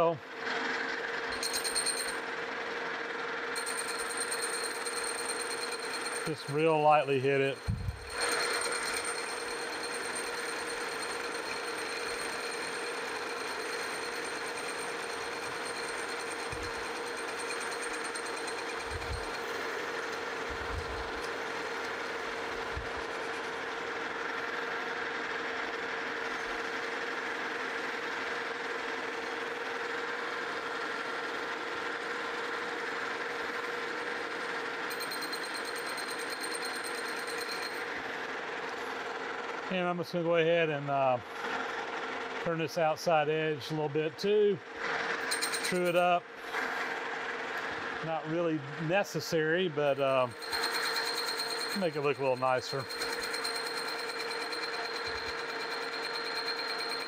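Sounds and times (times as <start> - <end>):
metal lathe whirring: 3.6 - 24.6, 50.3 - 57.0.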